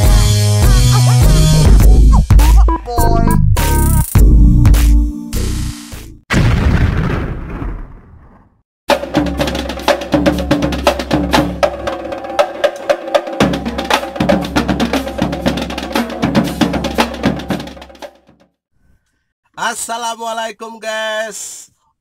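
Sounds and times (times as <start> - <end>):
jingle music with fast percussion: 0.0 - 4.9, 8.9 - 18.4
bass line: 0.0 - 6.2.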